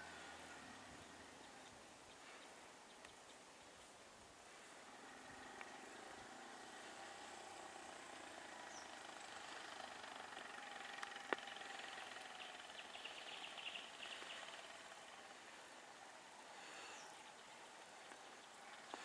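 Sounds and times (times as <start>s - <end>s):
faint vehicle engine running: 0.0s - 19.0s.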